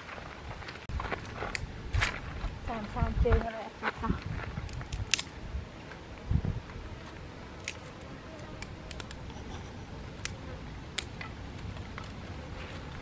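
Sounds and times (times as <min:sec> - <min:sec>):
twigs snapping: 0:04.6 - 0:05.4, 0:07.6 - 0:09.2.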